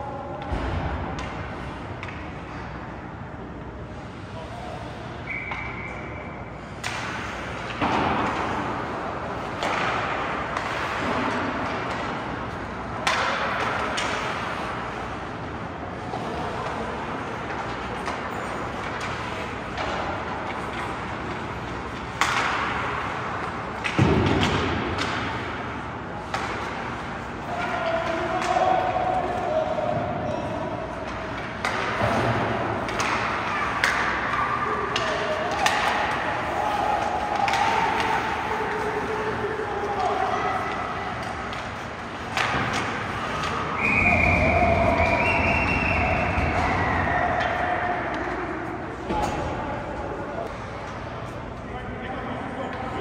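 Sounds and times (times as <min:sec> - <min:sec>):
arena background noise: 0:00.0 - 0:53.0
whistle-like tone: 0:05.2 - 0:06.3, 0:43.8 - 0:47.0
hockey sticks and puck knocks: 0:06.7 - 0:15.2, 0:16.1 - 0:49.6.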